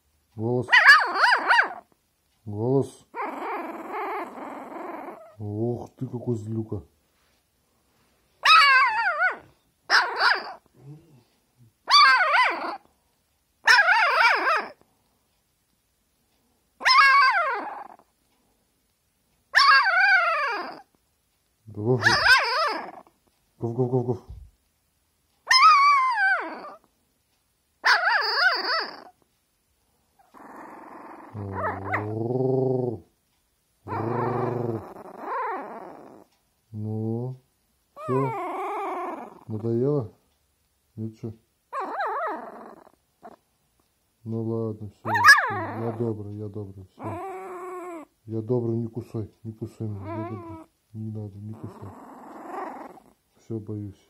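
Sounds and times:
puppy yipping: 0.7 - 1.9, 8.4 - 10.7, 11.9 - 12.9, 13.6 - 14.8, 16.8 - 18.0, 19.5 - 20.9, 22.0 - 23.1, 25.4 - 26.9, 27.8 - 29.2, 30.2 - 32.2, 33.9 - 36.3, 38.0 - 39.5, 41.7 - 43.4, 45.0 - 46.1, 47.0 - 48.1, 50.0 - 50.7, 51.5 - 53.2.

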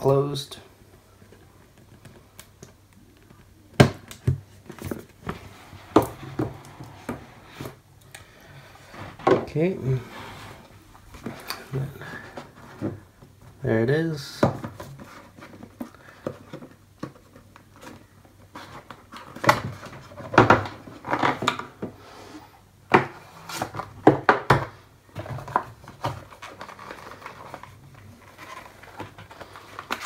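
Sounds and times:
cardboard tray sliding: 8.7 - 12.9.

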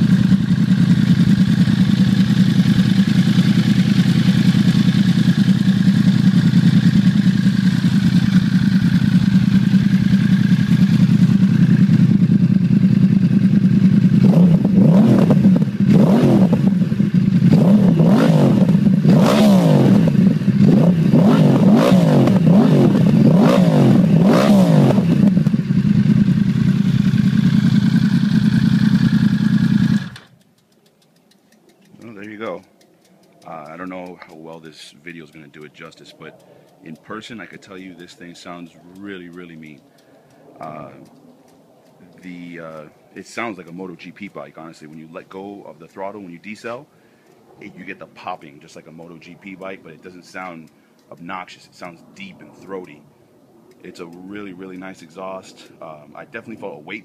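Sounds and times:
motorcycle engine revving: 0.0 - 30.6, 40.5 - 46.8, 47.5 - 57.0.

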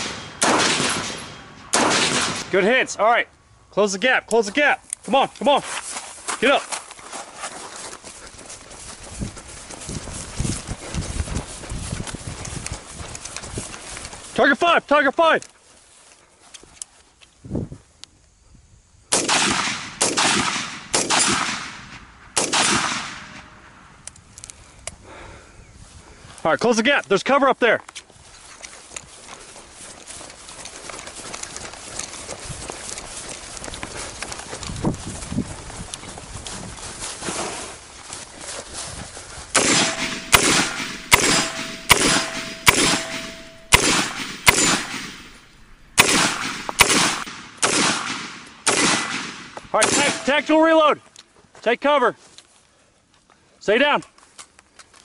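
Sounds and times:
rifle shots with echo: 0.0 - 2.7, 19.1 - 23.6, 39.6 - 50.6
thin steady ringing tone: 39.8 - 43.8.

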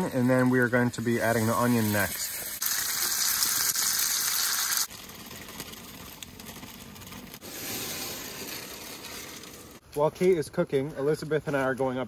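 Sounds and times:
chicken sizzling in hot oil: 1.1 - 9.7.

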